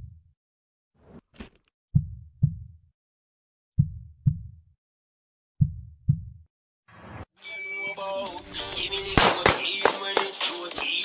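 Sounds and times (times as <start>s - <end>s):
heartbeat thumps: 1.9s - 2.8s, 3.8s - 4.6s, 5.6s - 6.4s.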